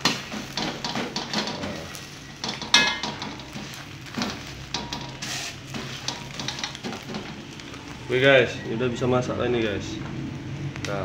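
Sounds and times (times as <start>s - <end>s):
metal spatula scraping a wok: 0.0s - 7.5s
egg sizzling in oil: 0.0s - 8.7s.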